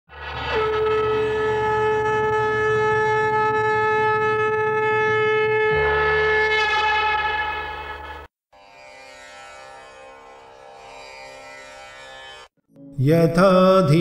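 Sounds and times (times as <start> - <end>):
conch shell blown in long note: 0.1 - 8.3.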